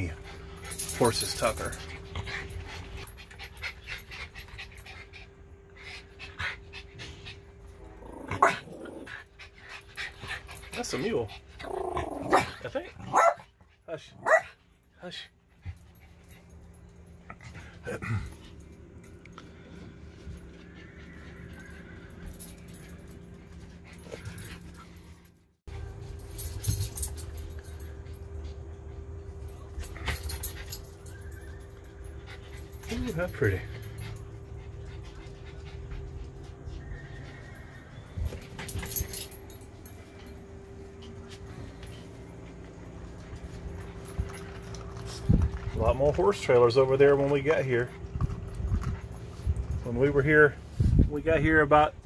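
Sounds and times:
dogs whining and whimpering: 0.0 - 12.8, 15.7 - 25.4, 26.6 - 50.6
steady low hum: 0.0 - 52.0
dog panting: 32.0 - 38.6.

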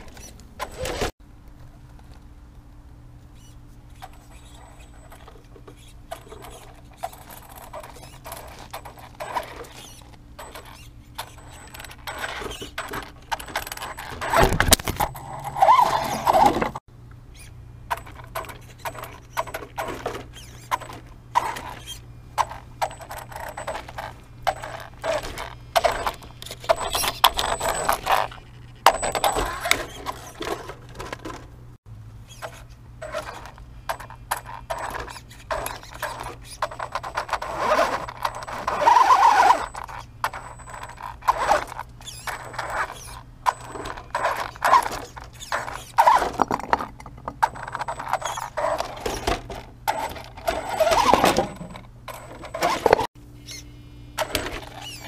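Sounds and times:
tyres and stones clattering on rock: 43.4 - 51.8.

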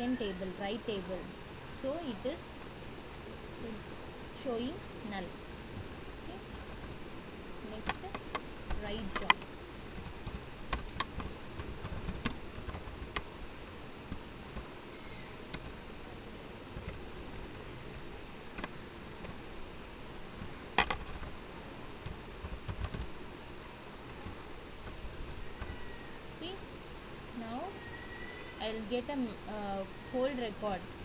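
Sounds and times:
typing on computer keyboard: 6.4 - 7.0, 7.8 - 13.3, 15.5 - 15.8, 16.7 - 19.4, 20.4 - 21.4, 22.0 - 23.1, 24.1 - 25.8.

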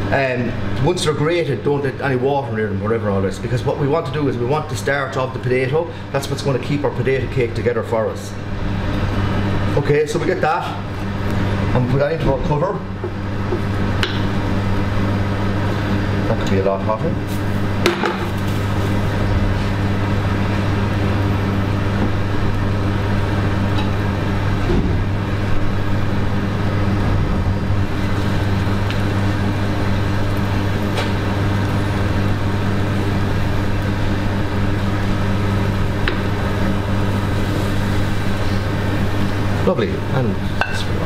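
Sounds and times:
steady low hum: 0.0 - 41.0
food sizzling in oil: 27.8 - 39.6.

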